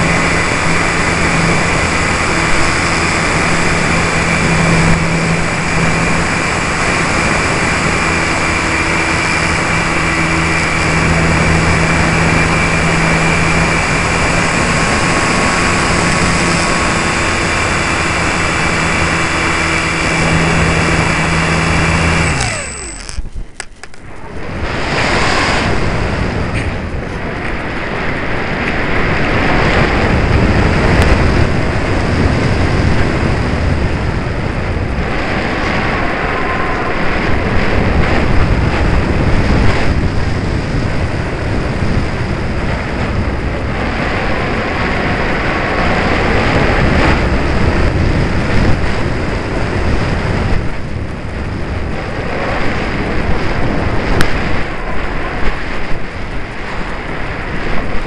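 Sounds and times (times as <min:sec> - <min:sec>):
airflow buffeting microphone: 0:00.0 - 0:58.0.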